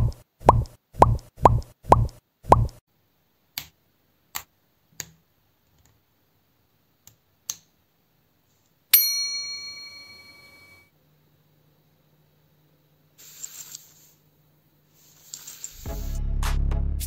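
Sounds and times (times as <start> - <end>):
bright bell-like ding: 9.0 - 10.9.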